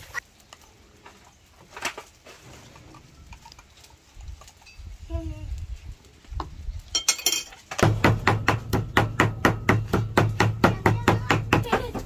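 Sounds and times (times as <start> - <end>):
light clinks: 6.9 - 7.7.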